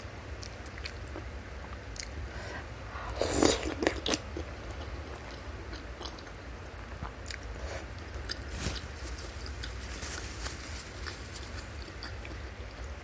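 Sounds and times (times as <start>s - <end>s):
steady low hum: 0.0s - 13.0s
close chewing with mouth clicks: 3.2s - 13.0s.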